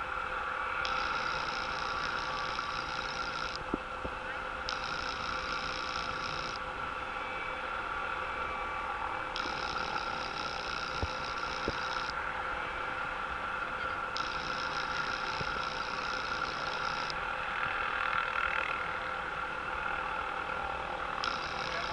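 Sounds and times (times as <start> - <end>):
distant helicopter hovering: 0.0 - 21.9
high hiss: 0.8 - 3.6.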